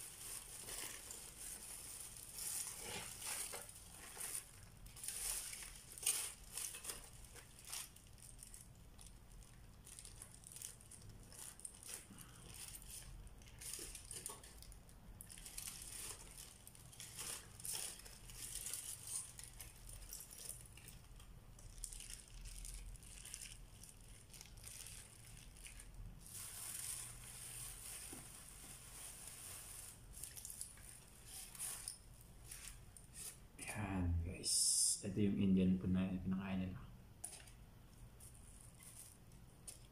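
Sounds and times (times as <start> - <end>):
plastic and foil wrapping crinkling: 0.0 - 34.0, 37.2 - 39.9.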